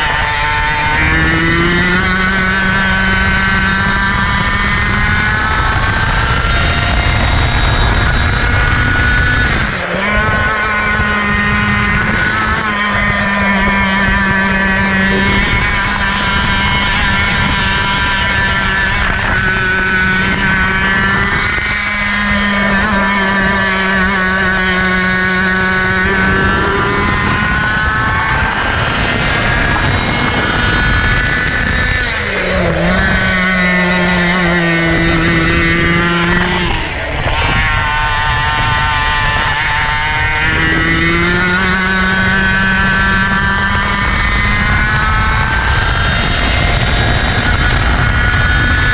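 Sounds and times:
kart engine racing: 0:00.0 - 0:48.9.

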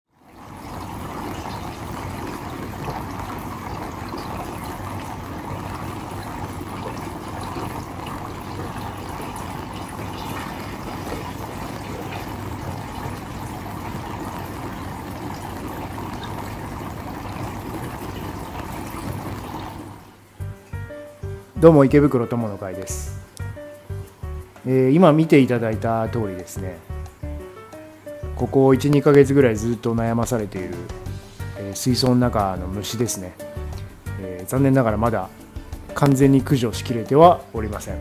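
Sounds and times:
water splashing into tank: 0:00.1 - 0:20.3.

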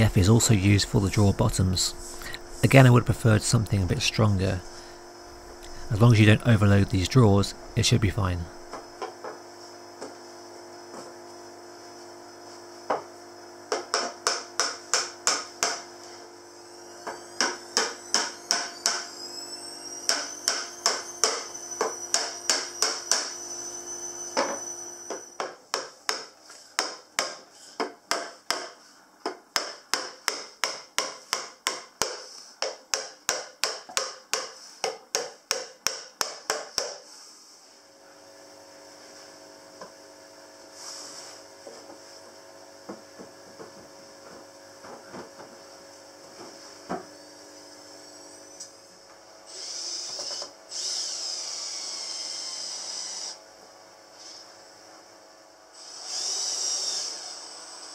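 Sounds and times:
hammer tapping on wood: 0:25.4 - 0:37.0.

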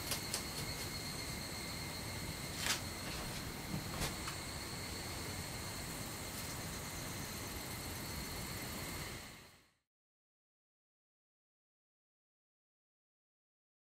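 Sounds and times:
background hiss: 0:00.0 - 0:09.8
insect chirping trill: 0:00.0 - 0:09.8.

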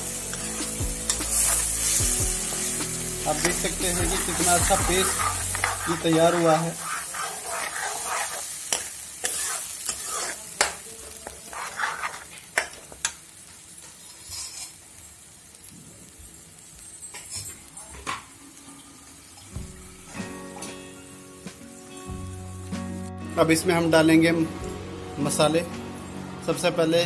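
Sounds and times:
paste sizzling in a pan: 0:00.0 - 0:23.7
ladle stirring and scraping: 0:03.3 - 0:12.9.

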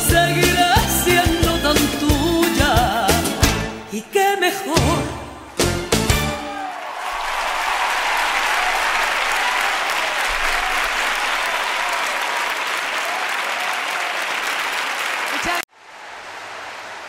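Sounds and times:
audience applauding: 0:06.3 - 0:17.0.

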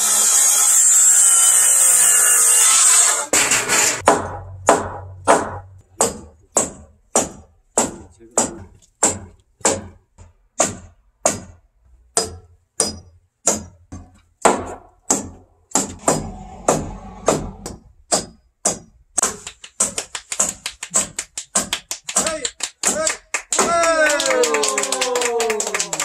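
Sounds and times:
hammer striking timber: 0:04.0 - 0:16.2, 0:18.1 - 0:19.4.

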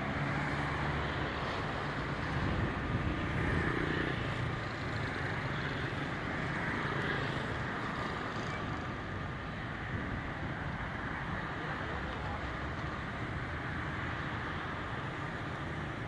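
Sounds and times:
street traffic: 0:00.0 - 0:16.0.

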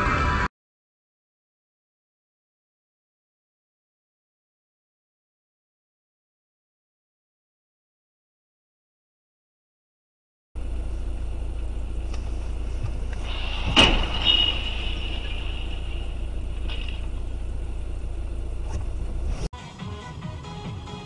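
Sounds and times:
high screech: 0:00.0 - 0:00.5, 0:13.2 - 0:17.1
car road rumble: 0:10.6 - 0:19.5
loud collision bang: 0:13.2 - 0:18.1.

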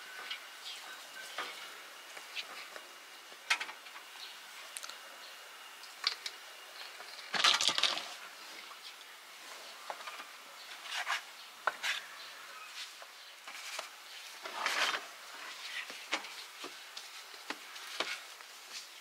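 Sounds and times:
dough scraping from basin: 0:14.4 - 0:15.8.

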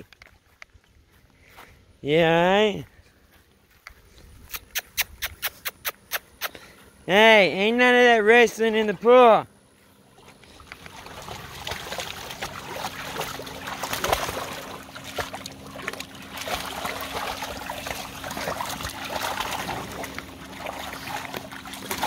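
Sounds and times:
water splashing and sloshing: 0:00.0 - 0:01.3, 0:08.5 - 0:22.0
faint steady hum: 0:00.0 - 0:22.0.

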